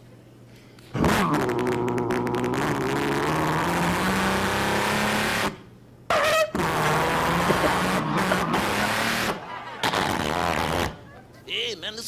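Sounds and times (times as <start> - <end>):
man imitating truck engine: 1.0 - 5.5, 6.2 - 11.0.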